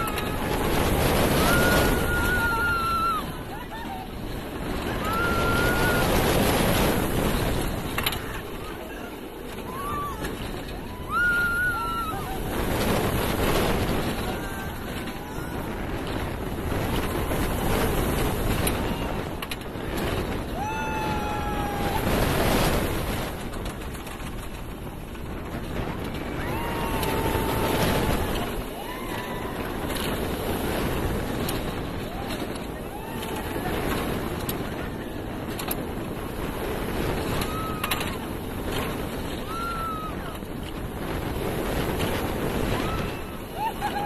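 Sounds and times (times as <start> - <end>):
rider screaming: 0.0 - 6.6, 9.5 - 16.0, 20.4 - 22.3, 26.2 - 30.2
roller coaster wheels rumbling: 0.0 - 44.0
wind rushing over microphone: 0.0 - 44.0.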